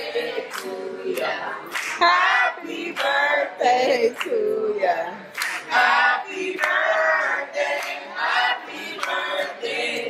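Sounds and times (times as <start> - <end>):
group singing a celebration song: 0.0 - 10.0.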